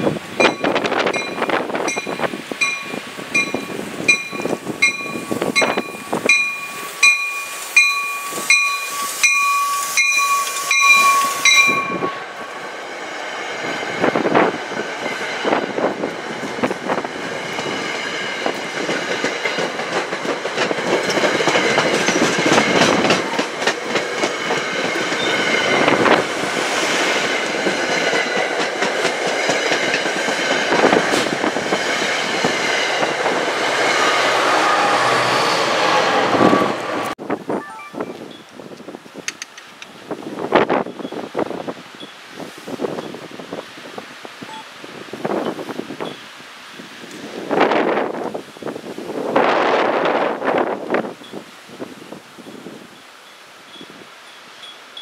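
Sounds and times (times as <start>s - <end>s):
train bell ringing: 0.4s - 12.4s, 52.4s - 55.0s
train wheels clattering: 15.0s - 34.0s.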